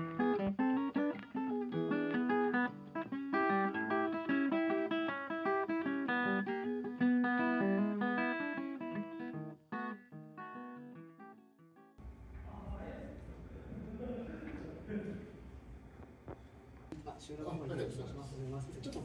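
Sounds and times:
plucked acoustic guitar: 0.0 - 11.7.

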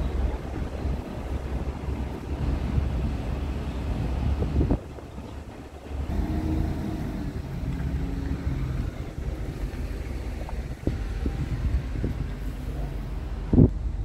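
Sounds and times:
wind on microphone: 0.0 - 14.0
truck engine idling: 5.2 - 14.0.

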